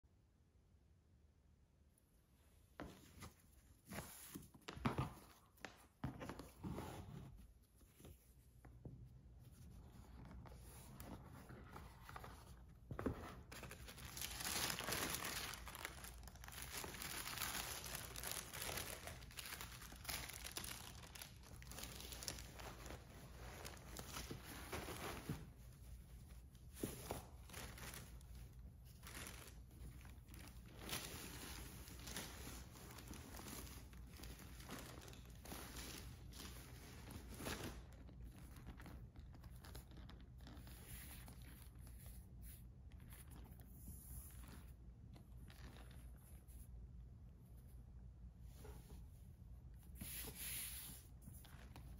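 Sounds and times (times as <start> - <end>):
tissue paper crinkling: 9.5 - 44.7.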